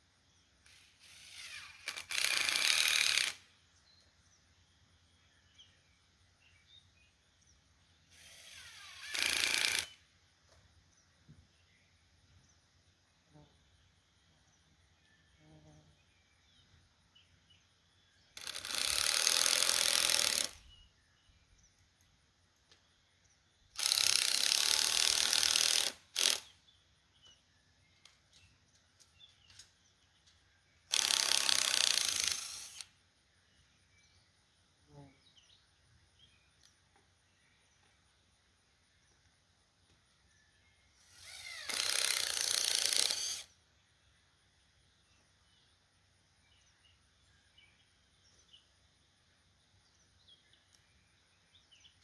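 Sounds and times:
ratcheting bursts: 0.6 - 3.5, 8.1 - 10.0, 18.4 - 20.6, 23.8 - 26.5, 30.9 - 32.9, 41.0 - 43.5.

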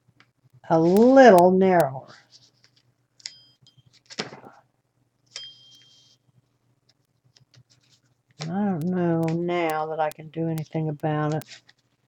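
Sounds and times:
paper rustle: 2.1 - 2.9, 3.9 - 4.6, 6.9 - 8.5, 11.4 - 12.0.

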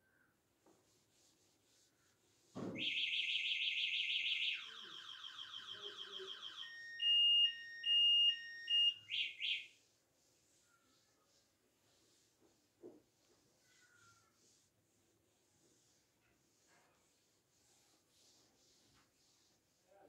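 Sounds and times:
electronic alarm warbling: 2.8 - 9.7
electronic beeps and chirps: 2.8 - 9.7.

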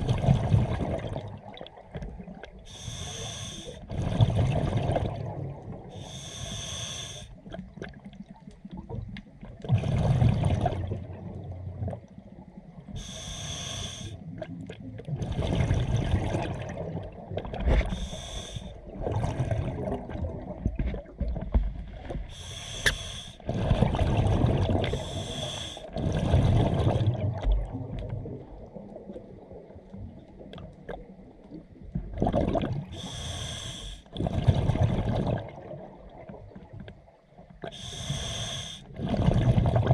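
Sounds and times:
gurgling exhaled bubbles: 0.0 - 2.6, 3.7 - 6.0, 7.4 - 12.3, 14.1 - 21.8, 23.4 - 36.7, 37.5 - 39.9
hissing regulator inhalations: 2.7 - 3.8, 6.0 - 7.3, 13.0 - 14.2, 17.9 - 18.7, 22.3 - 23.4, 24.9 - 25.9, 33.0 - 34.1, 37.7 - 38.9.

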